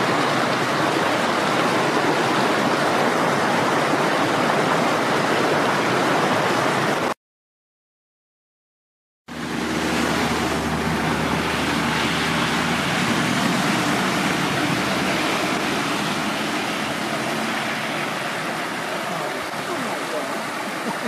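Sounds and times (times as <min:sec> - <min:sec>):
mountain stream rushing: 0:00.0 - 0:07.2, 0:09.3 - 0:21.0.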